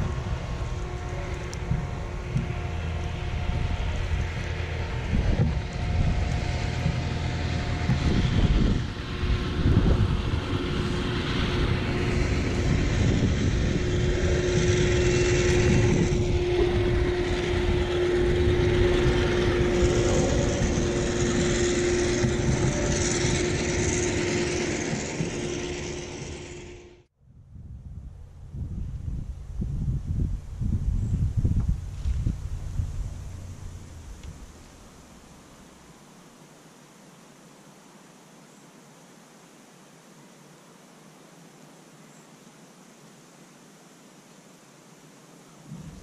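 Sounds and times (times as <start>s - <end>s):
wind buffeting microphone: 0.0s - 26.5s, 27.2s - 35.1s, 45.6s - 46.0s
steady mechanical drone: 0.0s - 27.1s, 27.9s - 35.9s, 45.6s - 46.0s.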